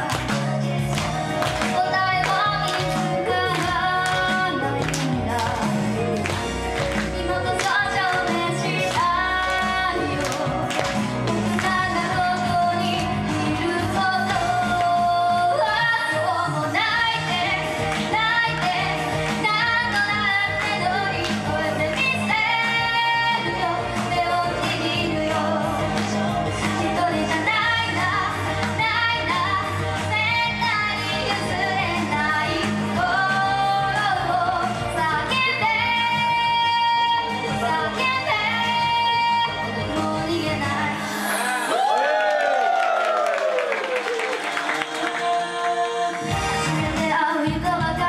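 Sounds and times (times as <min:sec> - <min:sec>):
karaoke backing track: 0:00.0 - 0:48.0
girl singing into a microphone: 0:01.7 - 0:05.6, 0:07.2 - 0:10.6, 0:11.5 - 0:41.7, 0:46.8 - 0:48.0.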